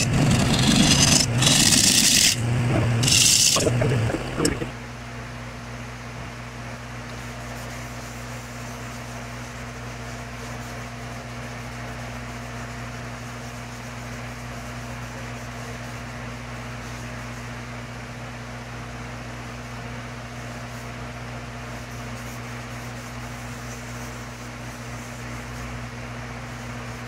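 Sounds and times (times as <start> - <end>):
electric motor hum: 0.0 - 4.8.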